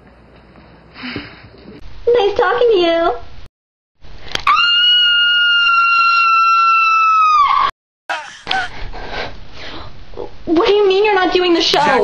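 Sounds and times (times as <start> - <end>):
woman screaming: 4.4 - 8.6.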